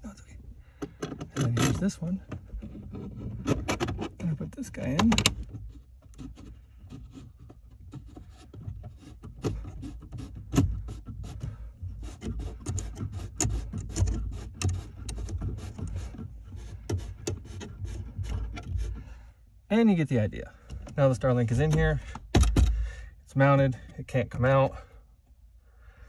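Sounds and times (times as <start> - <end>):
screw and plastic scraping: 0.7 - 19.2, 20.6 - 22.8.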